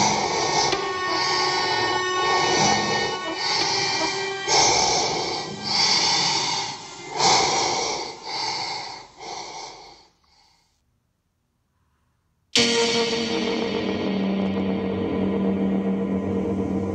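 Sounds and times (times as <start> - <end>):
heavy rasping breaths: 0.0 - 10.8.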